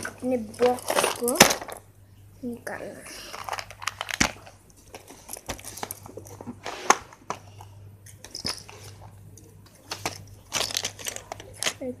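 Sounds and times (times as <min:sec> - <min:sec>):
faint low hum: 0:00.0 - 0:12.0
plastic boxes clicking and knocking: 0:09.9 - 0:11.9.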